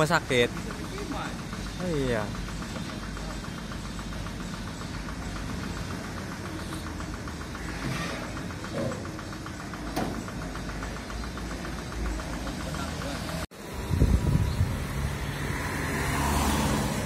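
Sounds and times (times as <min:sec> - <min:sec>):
fast even ticking: 0:00.0 - 0:13.5
traffic engine rumble: 0:00.0 - 0:17.0.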